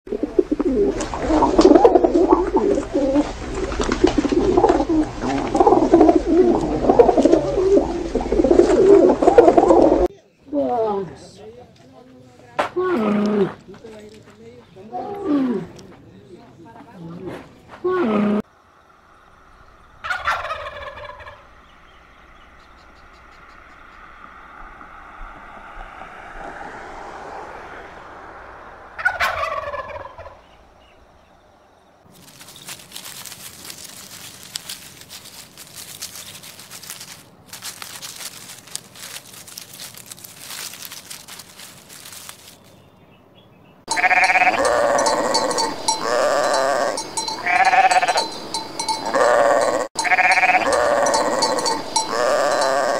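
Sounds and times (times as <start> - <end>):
camels moaning: 0.2 - 10.1, 14.9 - 15.9, 43.9 - 52.9
sheep bleating: 43.9 - 48.2, 49.0 - 52.9.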